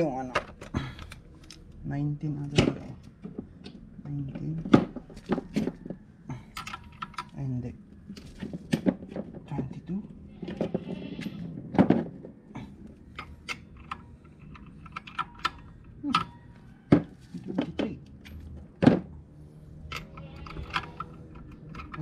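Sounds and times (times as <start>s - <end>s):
metal tools clicking and clinking: 6.5s - 7.4s, 13.1s - 16.7s, 19.8s - 22.0s.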